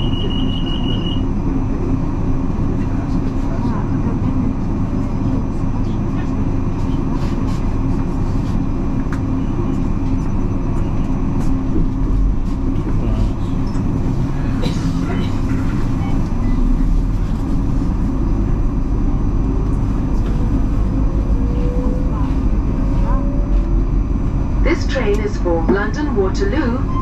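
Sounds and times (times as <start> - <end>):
train wheels rumbling on rail: 0.0 - 27.0
train whine rising in pitch: 18.0 - 26.0.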